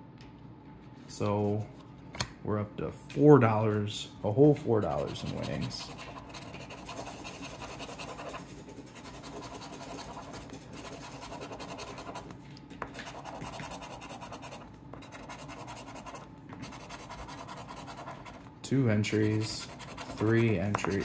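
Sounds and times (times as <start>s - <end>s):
coin scraping a scratch card: 4.9s - 12.2s, 13.0s - 18.4s, 19.1s - 21.0s.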